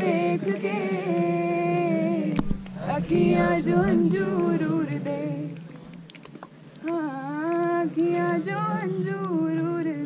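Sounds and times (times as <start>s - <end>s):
woman singing unaccompanied: 0.0s - 5.9s, 6.8s - 10.0s
brief knock: 2.4s - 2.7s.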